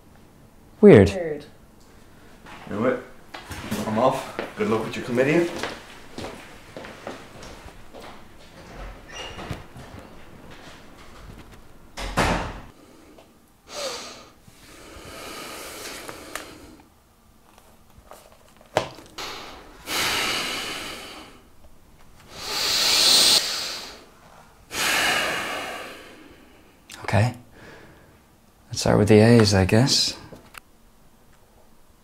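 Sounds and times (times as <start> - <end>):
door shutting: 8.5 - 12.7
man breathing heavily and sighing: 19.2 - 21.4.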